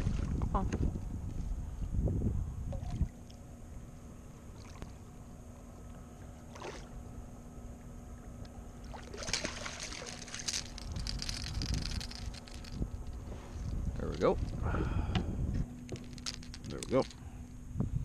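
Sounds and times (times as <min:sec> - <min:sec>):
fish splashing in water: 0:08.8 - 0:10.8.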